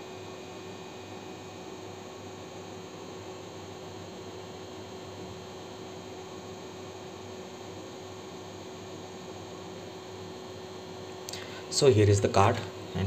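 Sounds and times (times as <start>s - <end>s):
faint even hum: 10.5s - 13.0s.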